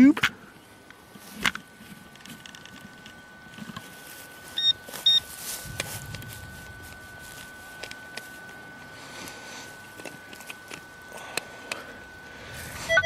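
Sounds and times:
metal detector high tone: 0:03.9 - 0:13.0
short electronic beeps: 0:04.6 - 0:05.2.

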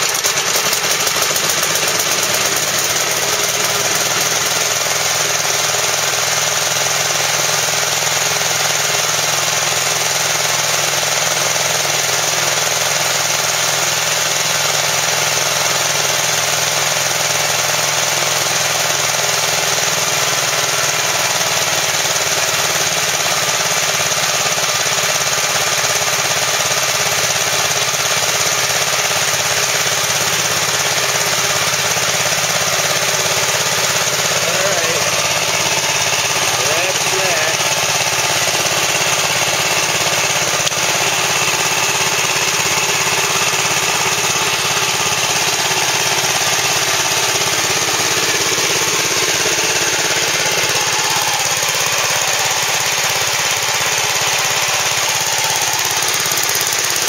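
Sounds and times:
single-cylinder engine chugging: 0:00.0 - 0:57.0.

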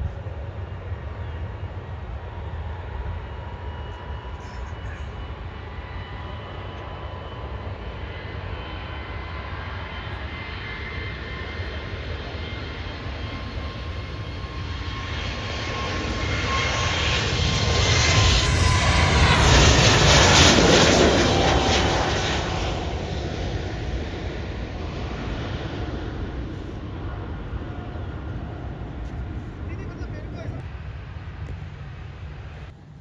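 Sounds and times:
jet airliner engine whine: 0:00.0 - 0:33.0.

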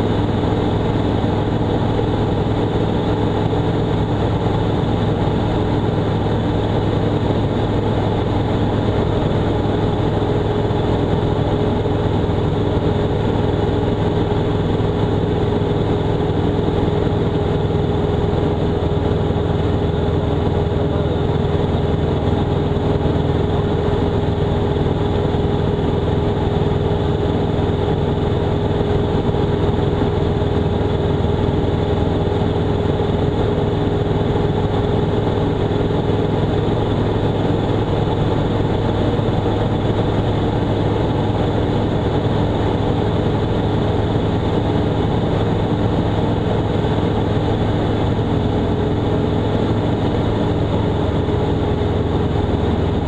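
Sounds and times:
propeller aircraft engine droning: 0:00.0 - 0:53.0.

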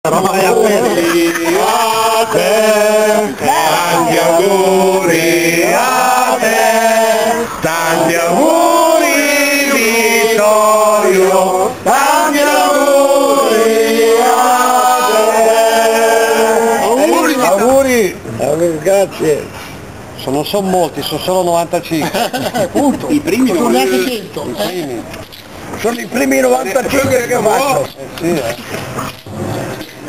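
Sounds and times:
group singing: 0:00.1 - 0:17.6.

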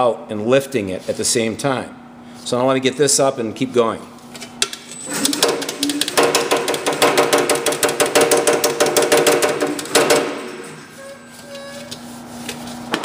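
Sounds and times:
power hammer striking metal panel: 0:05.4 - 0:10.8.

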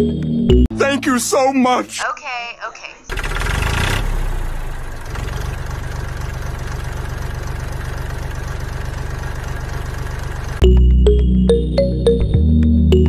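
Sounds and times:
tractor engine idling: 0:03.1 - 0:10.7.

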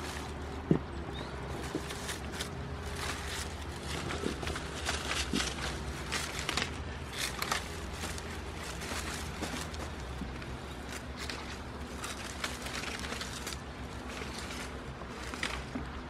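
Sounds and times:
goats crunching leaves: 0:00.0 - 0:16.0.

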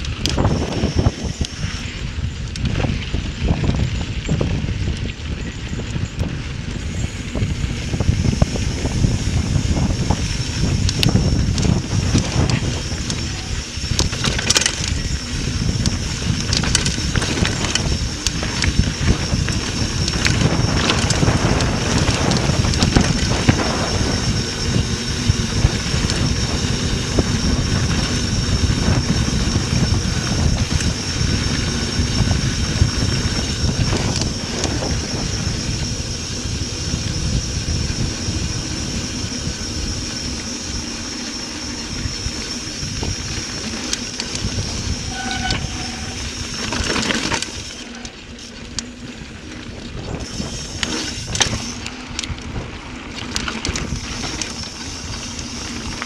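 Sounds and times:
thin high whine: 0:00.0 - 0:02.5, 0:05.6 - 0:52.2
bike clicks and rattles: 0:00.0 - 0:56.0
tyres rumbling on dirt: 0:00.0 - 0:56.0
wind buffeting microphone: 0:00.0 - 0:56.0.

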